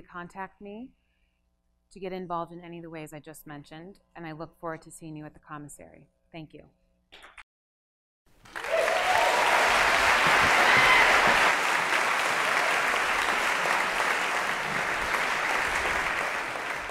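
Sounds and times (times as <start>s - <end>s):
audience applauding: 8.4s - 16.9s.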